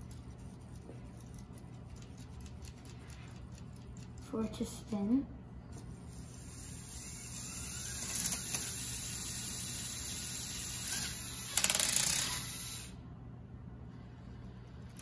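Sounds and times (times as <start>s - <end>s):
spinning top whirring: 6.0s - 13.0s.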